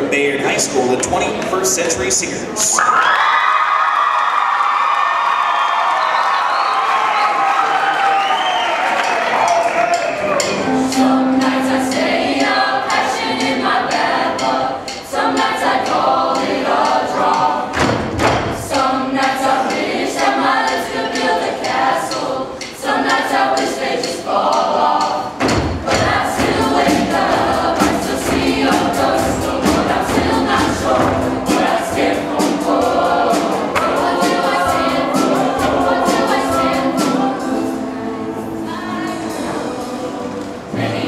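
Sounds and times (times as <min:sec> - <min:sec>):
choir singing: 0:07.3 - 0:41.0
steady beat of knocks: 0:11.0 - 0:37.1.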